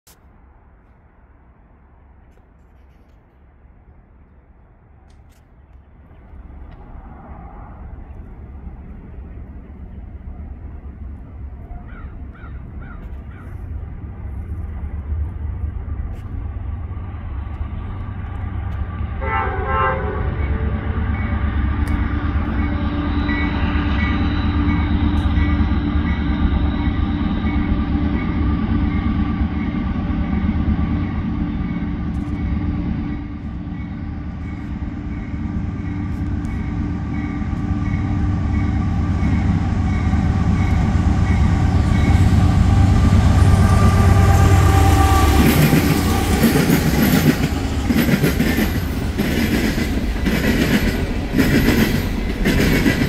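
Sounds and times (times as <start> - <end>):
diesel train rumble: 0.2 - 53.0
locomotive air horn chord: 19.2 - 21.2, 41.7 - 46.4.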